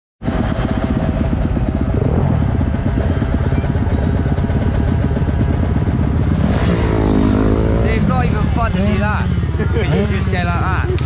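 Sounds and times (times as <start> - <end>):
motorcycle engine idling: 0.2 - 6.6.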